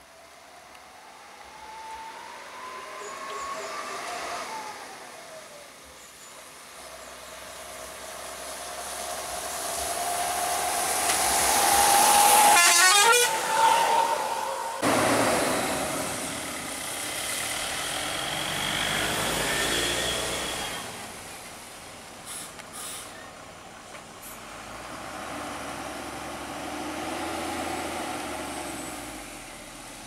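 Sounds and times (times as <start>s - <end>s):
vehicle horn rising and falling: 12.0s - 14.9s.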